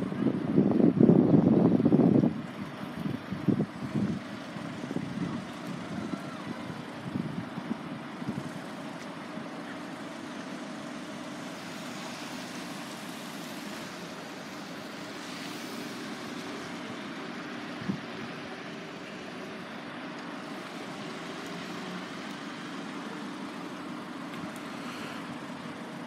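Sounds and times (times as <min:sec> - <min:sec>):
wind buffeting microphone: 0:00.0 - 0:08.6
road traffic rumble: 0:00.0 - 0:26.0.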